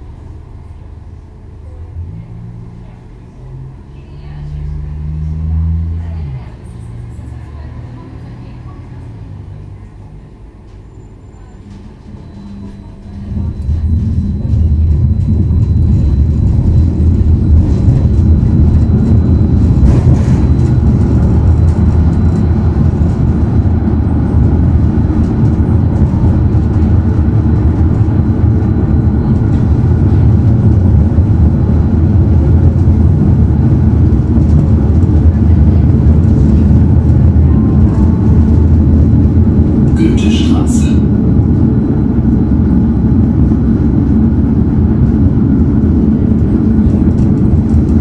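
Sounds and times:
tram wheels rumbling: 0.0 - 48.0.

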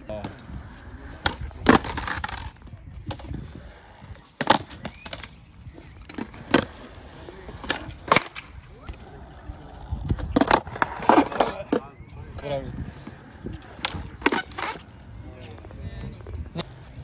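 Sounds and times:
skateboard wheels rolling: 0.0 - 17.0
skateboard tail pops: 7.6 - 9.0.

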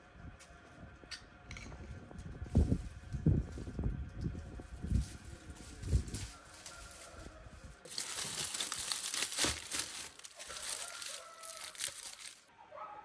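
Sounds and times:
dry stalks crackling and rustling: 2.0 - 12.5.

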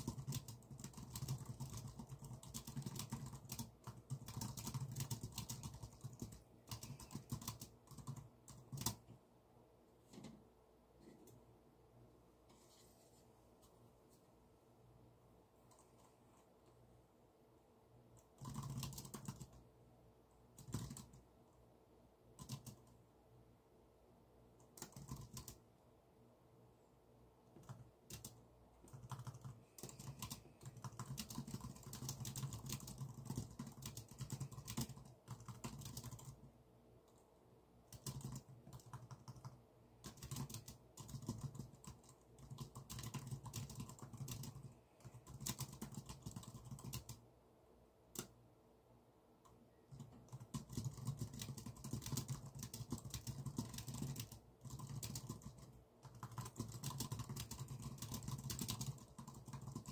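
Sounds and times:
typing on computer keyboard: 0.0 - 9.1, 18.2 - 19.6, 20.5 - 21.2, 22.4 - 23.0, 24.6 - 25.6, 27.6 - 36.5, 37.9 - 47.2, 48.2 - 48.4, 49.9 - 59.9.

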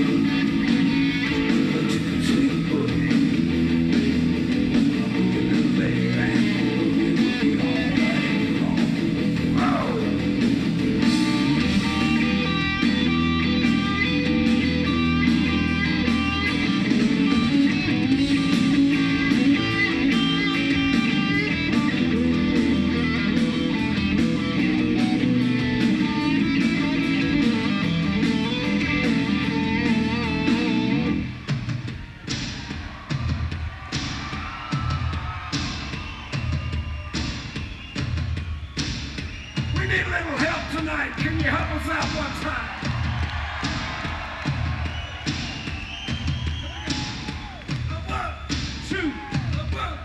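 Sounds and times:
electric guitar: 0.0 - 31.3
bass guitar: 0.0 - 32.4
drum beat: 0.0 - 50.0.

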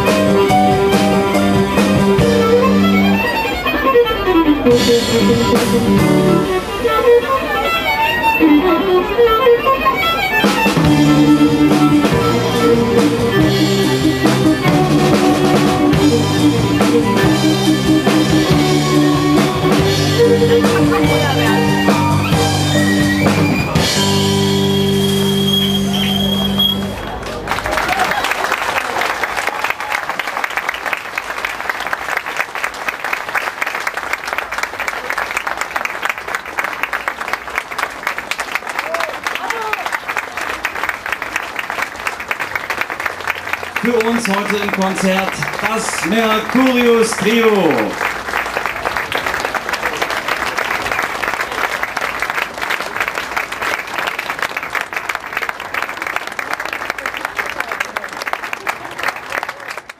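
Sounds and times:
audience applauding: 0.0 - 59.9.

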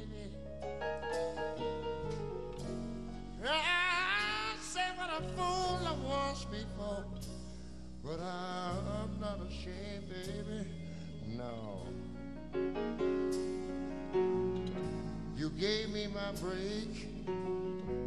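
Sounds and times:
man singing: 0.0 - 0.6, 3.4 - 7.3, 8.0 - 12.1, 15.3 - 17.5
big band ballad: 0.0 - 18.0.

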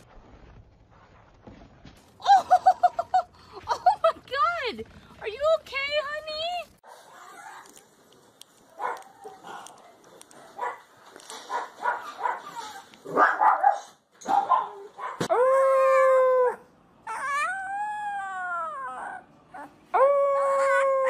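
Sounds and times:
puppy grunts and squeaks: 12.0 - 12.9
puppy howling: 15.3 - 21.0.

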